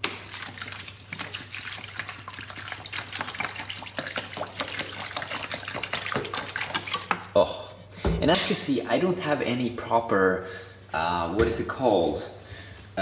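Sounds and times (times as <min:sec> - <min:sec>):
water pouring and splashing: 0:00.0 - 0:07.3.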